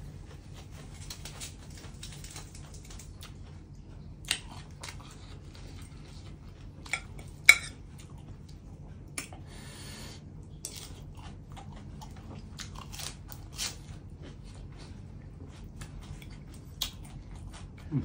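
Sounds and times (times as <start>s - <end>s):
metal spoon clinking on plate: 6.9s - 7.8s
crunchy bites and chewing: 10.5s - 18.0s.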